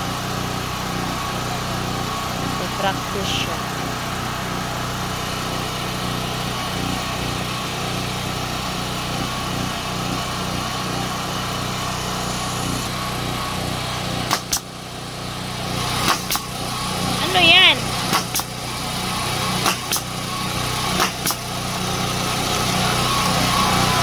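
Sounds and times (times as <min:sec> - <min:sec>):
small engine running: 0:00.0 - 0:24.0
nail gun shots: 0:14.2 - 0:14.8, 0:15.8 - 0:16.6, 0:18.0 - 0:18.6, 0:19.4 - 0:21.6.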